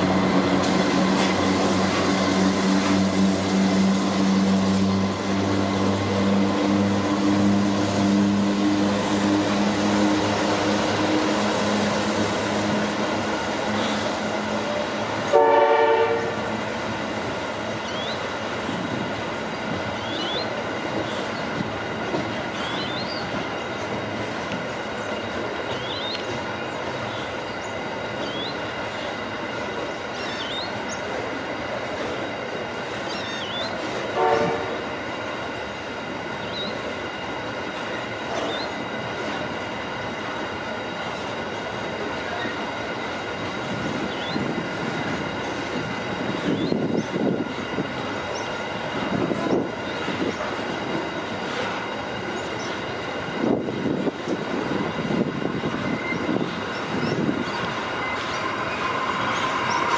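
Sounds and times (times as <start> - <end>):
locomotive engine humming: 0.0 - 59.9
train wheels on rails: 0.0 - 59.9
train horn blast: 15.2 - 16.5, 34.1 - 34.9.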